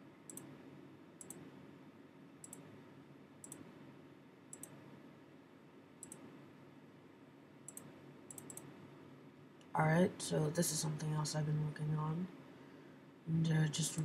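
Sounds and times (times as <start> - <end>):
low steady background hum: 0.0 - 14.0
faint computer mouse clicks: 0.3 - 0.5, 1.2 - 1.4, 2.4 - 2.7, 3.4 - 3.7, 4.5 - 4.8, 6.0 - 6.3, 7.7 - 8.7.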